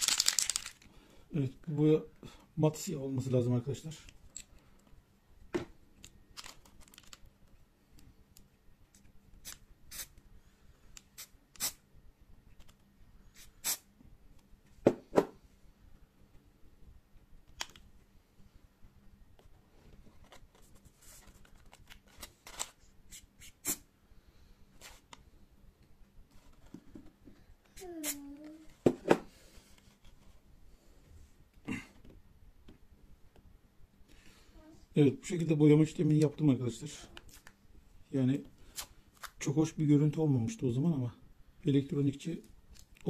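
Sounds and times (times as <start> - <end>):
paper rustling: 0.0 - 0.8.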